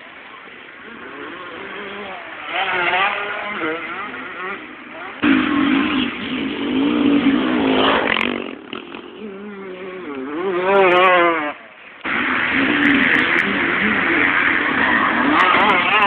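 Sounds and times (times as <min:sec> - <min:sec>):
motocross bike engines revving: 0:00.0 - 0:16.0.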